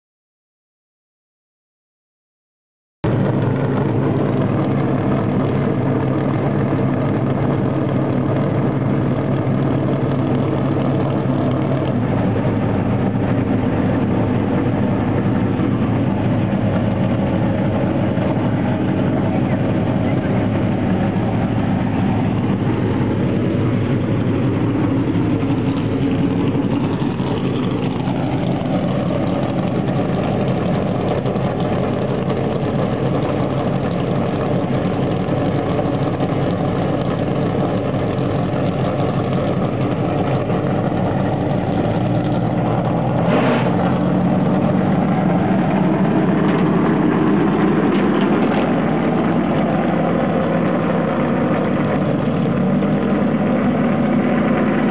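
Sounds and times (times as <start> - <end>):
race car engines idling: 3.0 - 54.9
brief sharp sound: 43.2 - 43.8.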